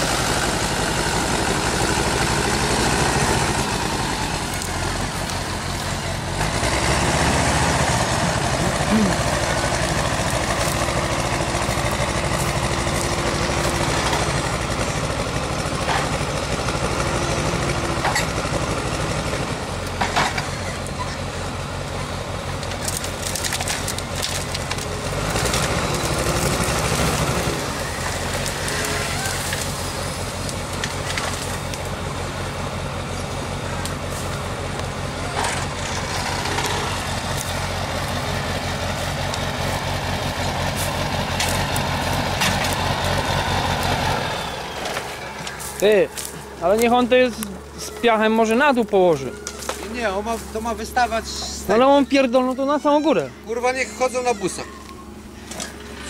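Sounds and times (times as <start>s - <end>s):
diesel engine under hydraulic load: 0.0s - 50.6s, 53.0s - 56.0s
branches snapping: 3.6s - 6.8s, 8.0s - 14.8s, 22.6s - 32.0s, 33.8s - 48.1s, 49.4s - 50.6s.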